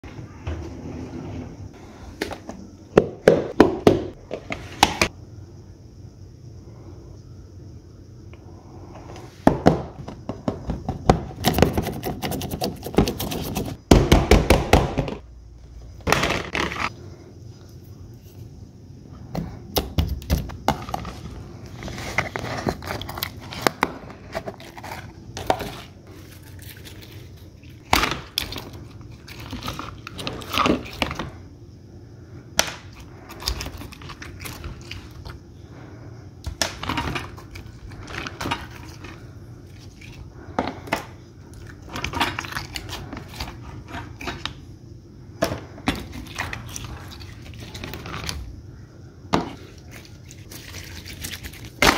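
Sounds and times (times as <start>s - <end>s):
wet squishing of slime: 40.9s - 44.5s, 45.9s - 48.4s, 49.6s - 51.9s.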